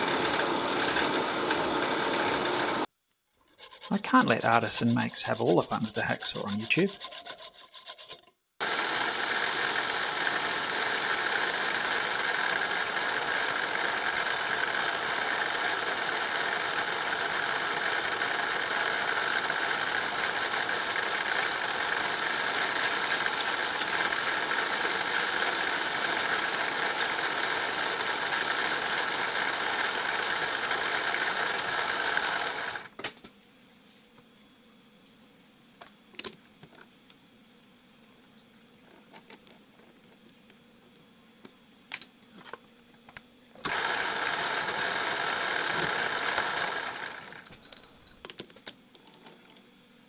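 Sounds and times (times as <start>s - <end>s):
metal lathe machining: 0.0s - 2.9s, 8.6s - 32.9s, 43.6s - 47.5s.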